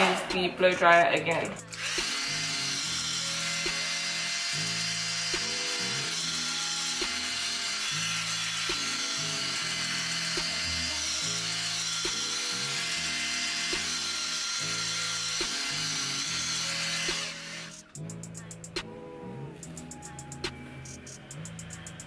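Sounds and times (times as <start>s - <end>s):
hair dryer blowing: 1.7s - 17.8s
background music with beat: 5.2s - 7.5s, 8.6s - 9.6s, 12.0s - 12.5s, 15.4s - 22.0s.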